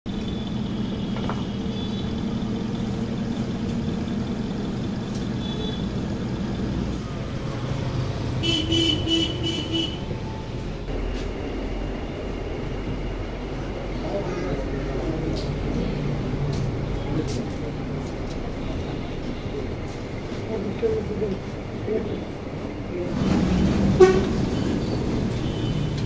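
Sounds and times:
road traffic engines: 0.0 - 26.0
vehicle horn short toots: 5.4 - 5.9, 8.4 - 10.1, 24.0 - 24.4.

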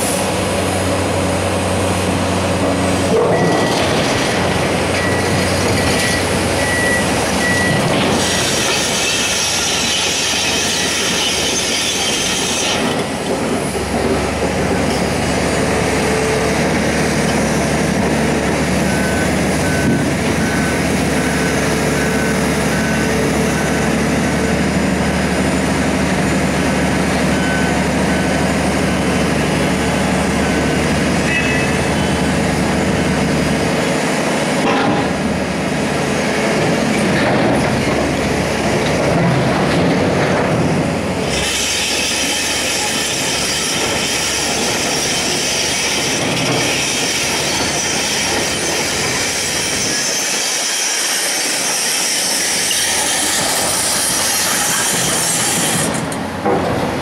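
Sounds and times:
excavator diesel engine: 0.0 - 57.0
reversing beeper: 3.3 - 4.0, 4.9 - 8.5, 18.8 - 24.0, 27.3 - 28.5.

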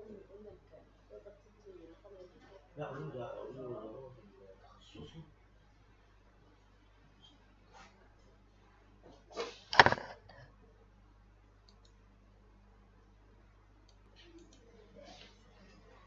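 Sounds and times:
loud clatter or knock: 9.8 - 10.2
faint clicks: 11.6 - 12.0, 13.8 - 14.7.

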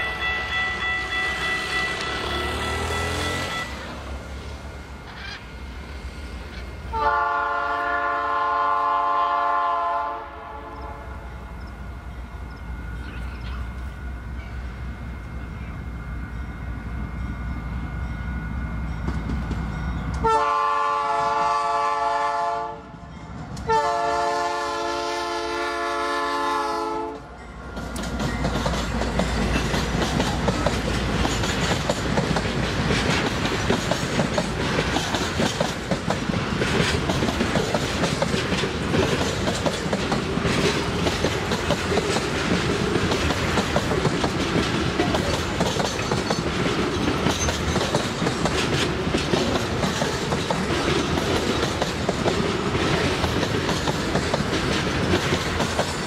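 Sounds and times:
locomotive horn blasts: 0.0 - 4.1, 6.9 - 11.3, 20.2 - 23.0, 23.6 - 27.3
train wagons rumbling: 0.0 - 56.0
wheels clacking over rails: 27.6 - 56.0.

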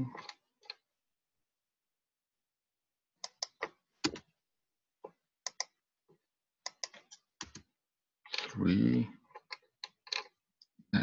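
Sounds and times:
keyboard and mouse clicks: 3.2 - 4.3, 5.4 - 5.8, 6.6 - 7.7.

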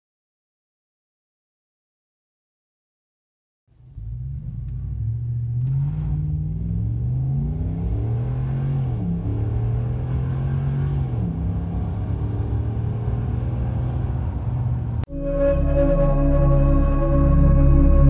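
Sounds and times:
car engine at full throttle: 3.8 - 18.0.

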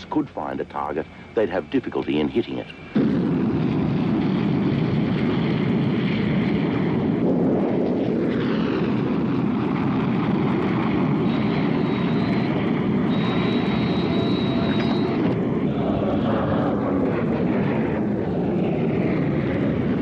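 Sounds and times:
jet engine roar at takeoff: 0.0 - 20.0
jet whine falling in pitch: 0.0 - 20.0
thin high whine: 11.2 - 15.8.

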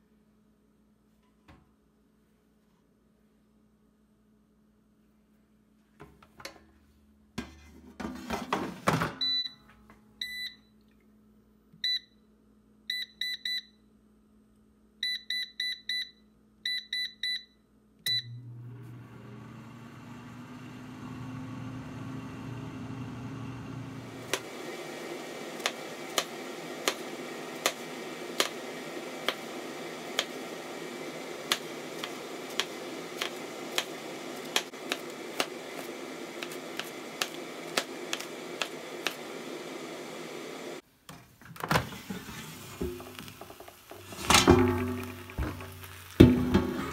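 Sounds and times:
control panel beeps: 12.9 - 13.8, 15.0 - 17.5
fan humming: 18.7 - 40.8
knife chopping on plastic board: 34.5 - 35.6
air fryer basket clattering: 41.6 - 46.9.

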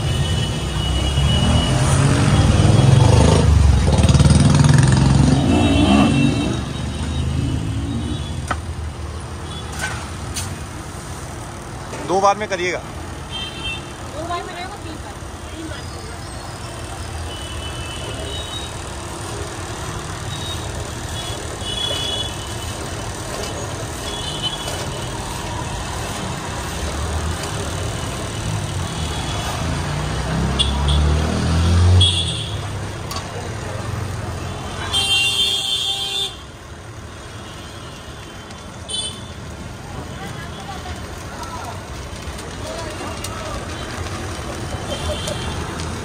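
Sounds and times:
traffic engines rumbling: 0.0 - 46.0
heavy vehicle passing: 1.2 - 8.3.

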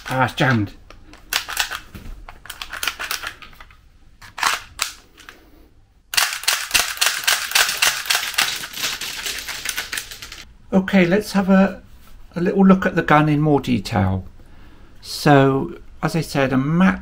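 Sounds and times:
toy pistol firing clacks: 6.1 - 8.6.

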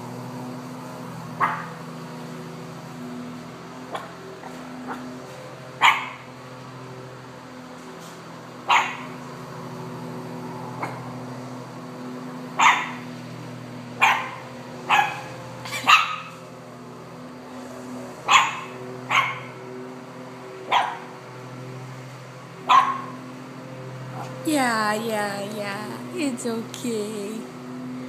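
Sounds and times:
lawn mower engine humming: 0.0 - 28.0
puppy barking: 1.4 - 1.7, 5.8 - 6.2, 8.7 - 9.1, 12.6 - 13.0, 14.0 - 16.4, 18.3 - 19.5, 20.7 - 21.1, 22.7 - 23.2.

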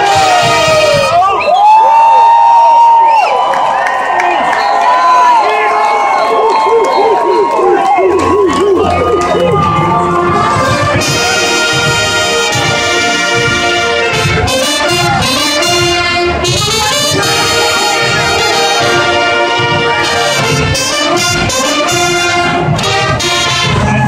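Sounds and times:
marching band brass chords: 0.0 - 1.7, 7.2 - 24.0.

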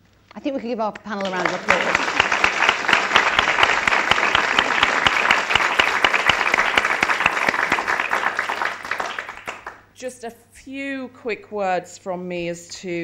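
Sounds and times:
audience applauding: 1.2 - 9.9.

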